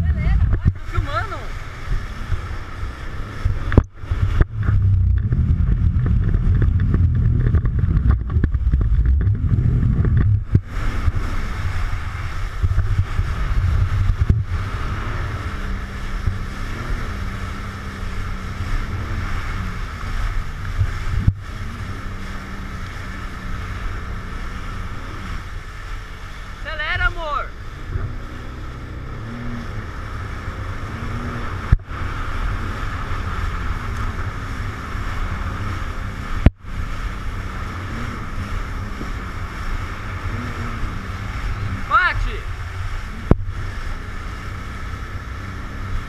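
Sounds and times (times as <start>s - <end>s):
jet ski engine: 0.0s - 46.0s
rushing water: 0.0s - 46.0s
wind buffeting microphone: 0.0s - 46.0s
sharp thumps: 3.4s - 10.8s.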